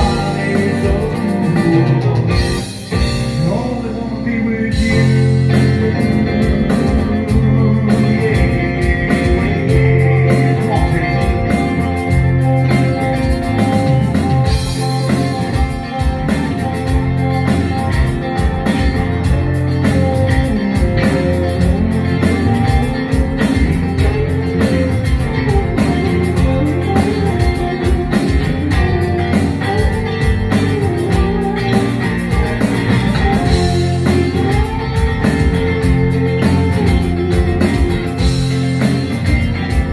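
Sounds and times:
bass guitar: 0.0 - 39.9
drum kit beat: 0.0 - 39.9
electric guitar: 0.0 - 39.9.

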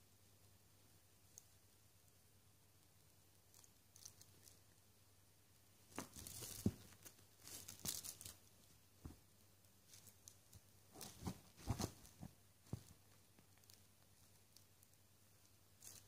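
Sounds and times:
cat scratching on fleece blanket: 10.0 - 13.7.

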